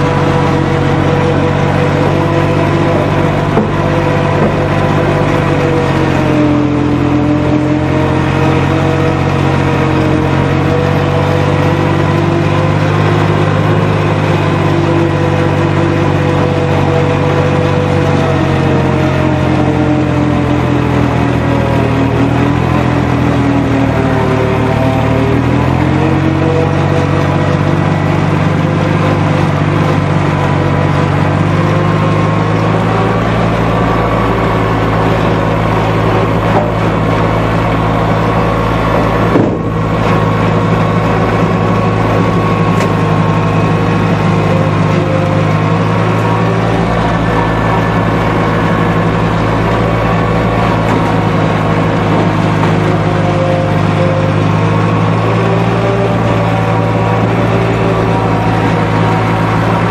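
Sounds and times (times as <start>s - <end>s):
lawn mower engine running: 0.0s - 59.9s.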